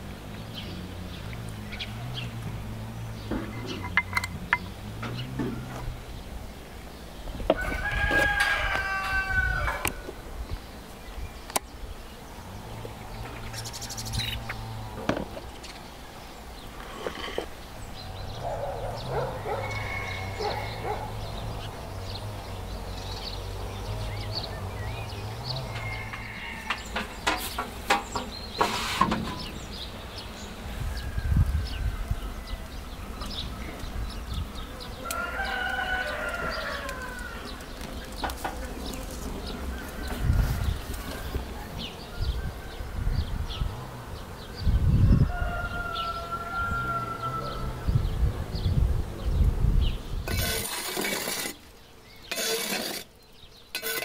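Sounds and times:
rooster crowing: 7.5s - 10.1s, 18.3s - 21.3s, 25.3s - 27.2s, 35.0s - 37.6s, 45.0s - 48.0s
chickens calling faintly: 12.4s - 22.0s.

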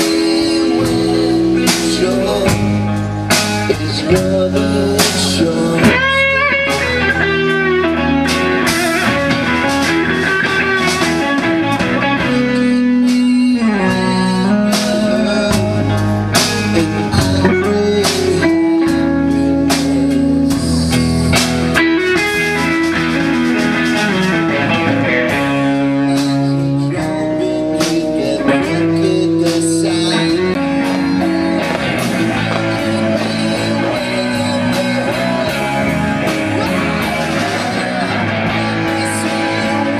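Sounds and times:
live blues-rock band: 0.0s - 39.9s.

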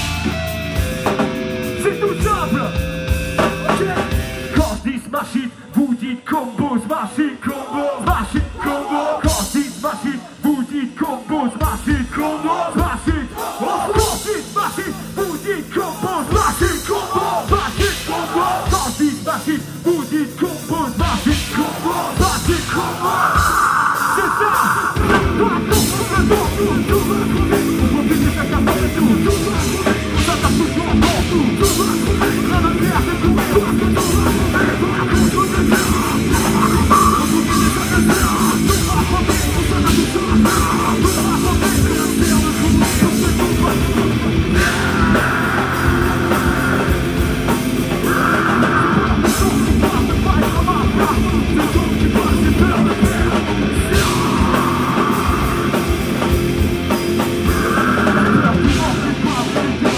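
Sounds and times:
rap-metal band playing live: 0.0s - 59.9s.

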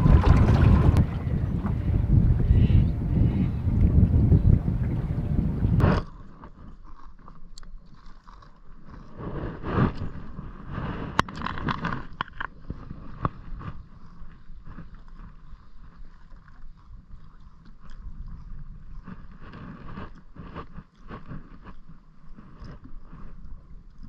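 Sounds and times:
water slapping against boat hull: 0.0s - 2.4s
wind buffeting microphone: 0.0s - 6.0s.

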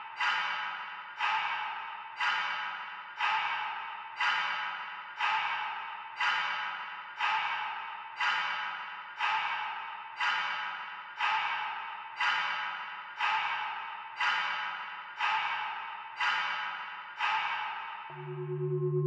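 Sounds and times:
dark ambient music: 18.1s - 19.0s.

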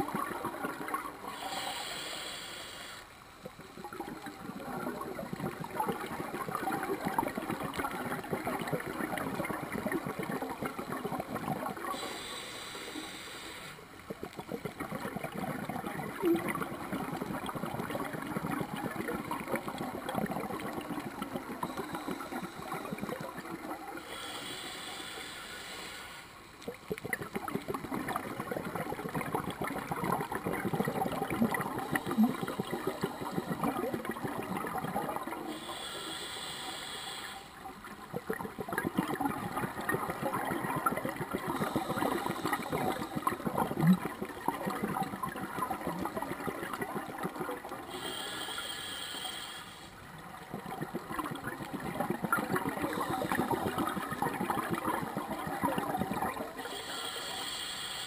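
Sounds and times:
gurgling exhaled bubbles: 0.0s - 2.0s, 3.4s - 12.3s, 14.0s - 25.2s, 26.6s - 36.1s, 37.6s - 48.9s, 50.0s - 57.4s
regulator hissing inhalation: 1.2s - 3.2s, 11.9s - 13.9s, 21.6s - 23.2s, 23.9s - 26.4s, 35.5s - 37.6s, 41.4s - 43.4s, 47.9s - 50.0s, 52.8s - 53.8s, 56.6s - 58.0s.

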